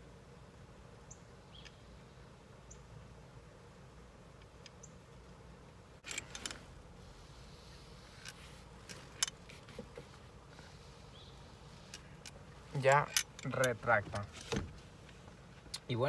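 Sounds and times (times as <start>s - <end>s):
seat belt webbing pulled: 12.8s - 14.9s.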